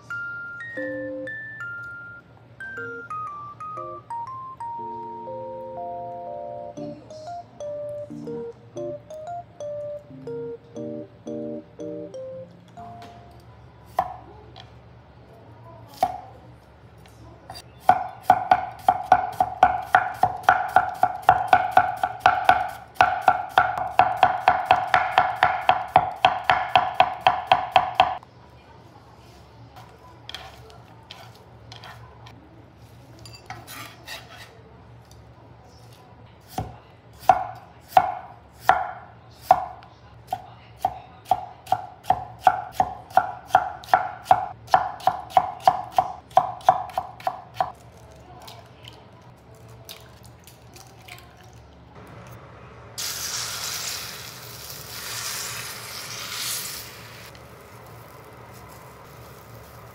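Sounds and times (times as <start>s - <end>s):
knife chopping on wooden board: 17.8s - 28.2s, 36.5s - 39.7s, 40.3s - 47.7s.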